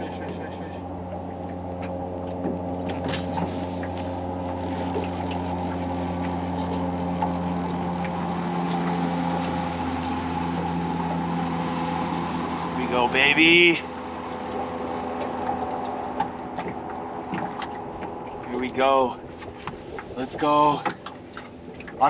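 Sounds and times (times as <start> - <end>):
outboard motor humming: 0.0 - 22.0.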